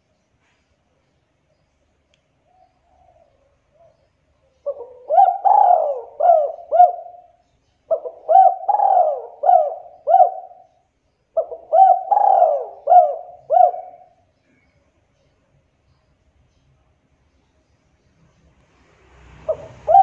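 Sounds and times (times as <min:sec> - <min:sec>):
dove cooing: 0:02.5 - 0:14.3, 0:19.4 - 0:20.0.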